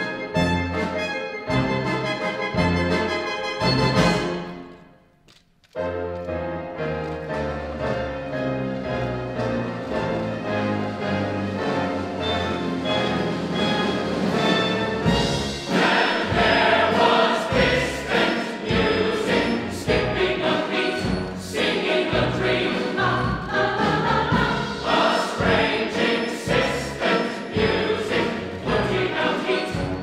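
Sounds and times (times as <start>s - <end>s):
chorus singing with orchestra: 10.0s - 30.0s.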